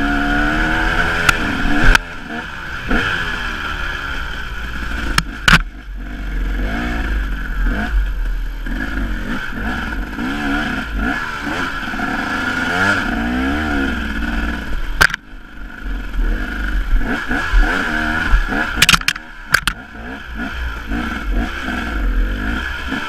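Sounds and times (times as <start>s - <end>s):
dirt bike engine revving: 0.0s - 23.0s
sharp knocks: 5.1s - 5.7s, 15.0s - 15.2s, 18.8s - 19.8s.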